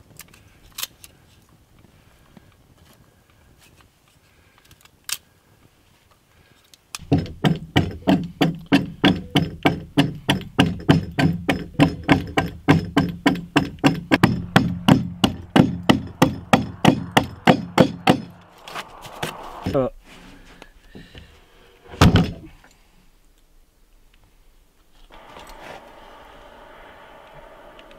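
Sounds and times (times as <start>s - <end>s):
hand axe chopping log: 7.0s - 18.4s.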